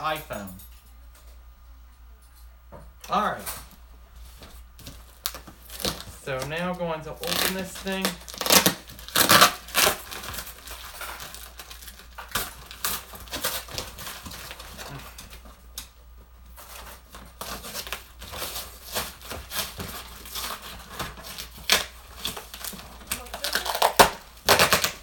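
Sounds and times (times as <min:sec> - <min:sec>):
packing material crinkling: 0:04.3 - 0:15.6, 0:16.6 - 0:25.0
tape and cardboard ripping: 0:04.8 - 0:06.5, 0:07.2 - 0:15.4, 0:17.4 - 0:25.0.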